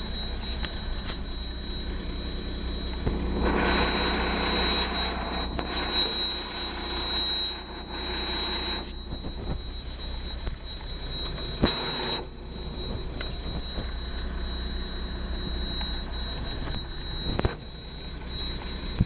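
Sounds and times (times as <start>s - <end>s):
diesel truck idling: 0.0s - 5.8s
thin high whine: 0.0s - 19.0s.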